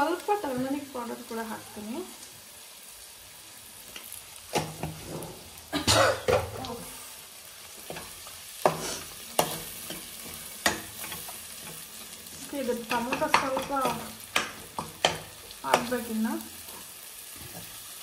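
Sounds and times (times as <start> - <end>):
food sizzling: 0.0 - 18.0.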